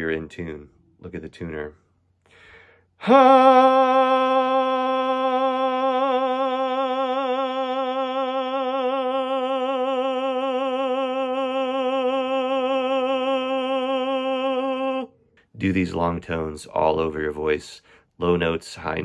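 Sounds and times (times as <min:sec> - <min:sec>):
man singing a long note: 0:03.0 - 0:15.1.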